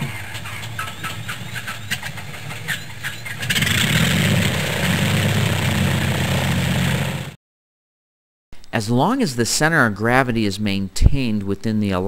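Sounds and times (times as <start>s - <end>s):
engine starting and running: 0.0s - 7.4s.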